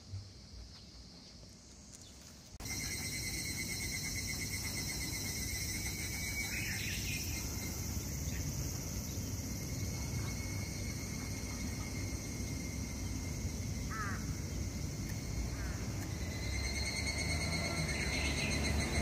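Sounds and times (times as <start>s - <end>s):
insect chirp: 0.0s - 19.0s
insects trilling: 0.0s - 19.0s.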